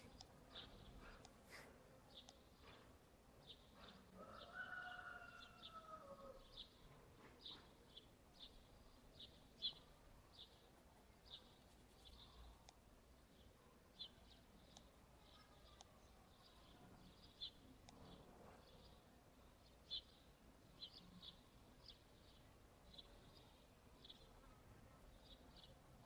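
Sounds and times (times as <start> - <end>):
bird chirping: 4.7 - 19.0.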